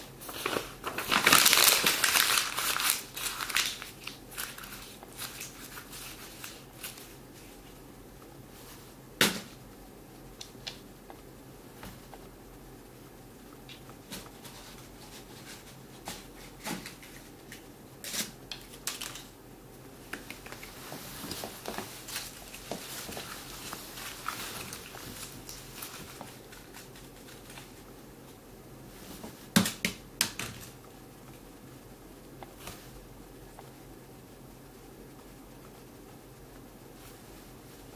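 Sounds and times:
paper crinkly rustling: 0.1s - 7.8s, 13.7s - 19.3s, 20.2s - 27.9s.

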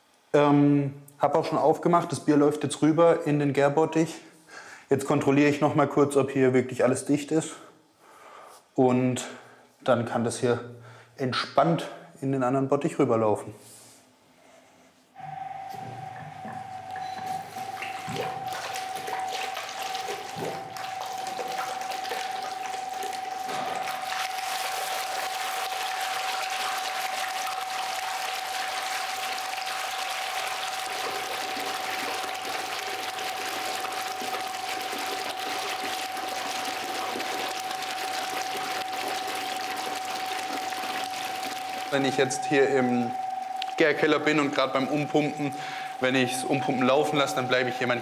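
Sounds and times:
thin steady tone: 14.4s - 27.9s, 34.0s - 48.0s
beer gushing and splashing into vat: 17.0s - 48.0s.

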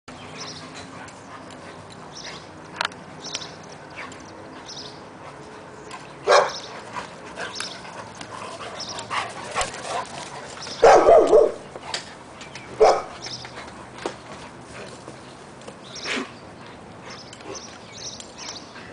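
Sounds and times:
dogs barking: 6.2s - 6.8s, 8.3s - 11.7s, 12.7s - 13.3s.

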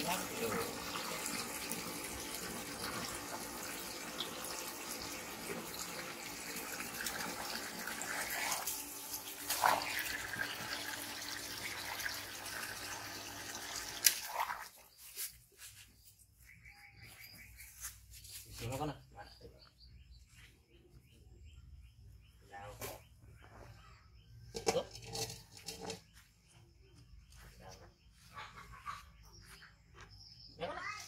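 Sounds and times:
water pouring into plastic basin: 0.0s - 14.8s.

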